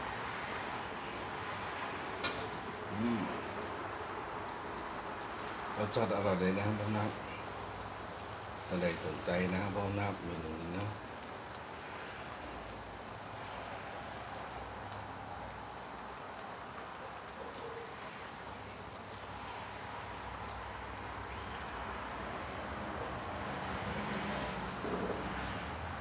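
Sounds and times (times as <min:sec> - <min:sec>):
cricket trilling: 0:00.0 - 0:26.0.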